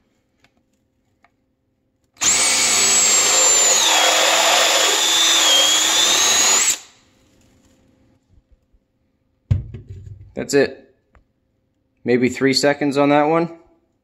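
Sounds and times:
cordless drill whining: 2.2 - 7.0.

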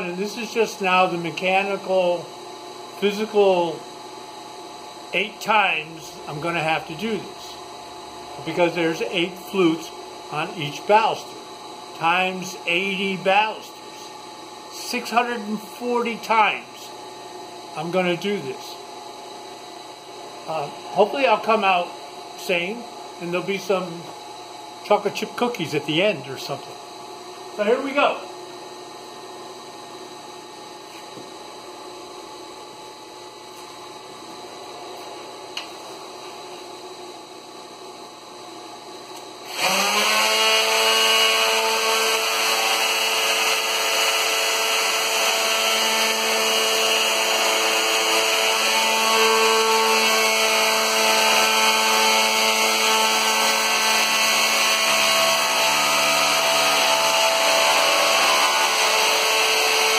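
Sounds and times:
router whining: 39.4 - 59.9.

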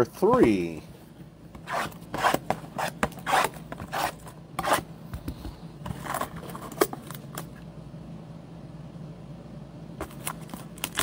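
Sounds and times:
cardboard and wrapper ripping: 10.1 - 11.0.

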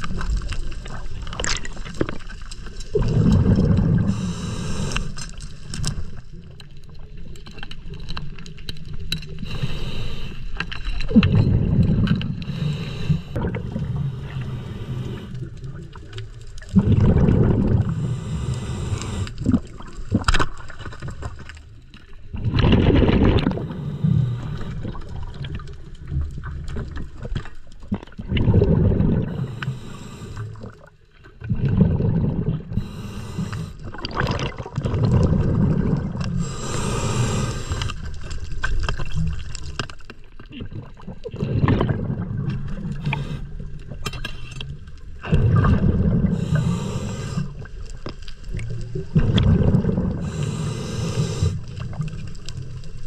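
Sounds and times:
gurgling exhaust bubbles: 2.9 - 4.3, 16.7 - 18.2, 22.3 - 27.3, 27.9 - 29.6, 31.4 - 33.1, 33.8 - 37.4, 40.5 - 43.6, 45.2 - 47.6, 48.5 - 52.8
regulator inhale hiss: 4.0 - 5.2, 9.4 - 10.6, 12.4 - 13.4, 14.0 - 15.5, 17.9 - 19.4, 23.6 - 24.8, 29.3 - 30.7, 32.7 - 33.8, 36.4 - 38.1, 43.0 - 43.6, 46.3 - 47.7, 50.2 - 51.8.

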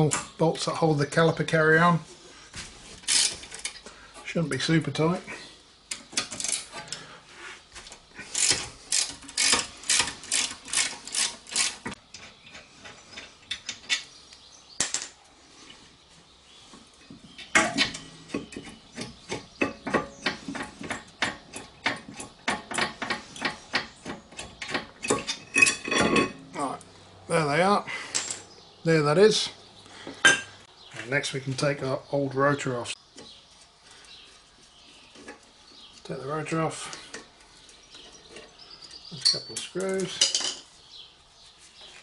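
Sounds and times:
ratcheting wrench clicking: 3.0 - 3.8, 8.3 - 11.9.

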